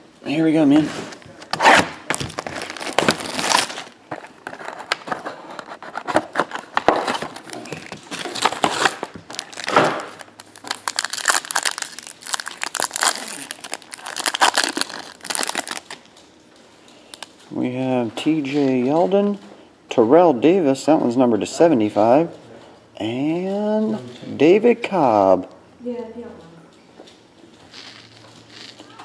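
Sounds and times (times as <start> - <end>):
foil pack crinkling: 1.1 - 16.1, 27.7 - 29.0
shrink wrap crinkling and tearing: 1.1 - 16.1, 27.6 - 29.0.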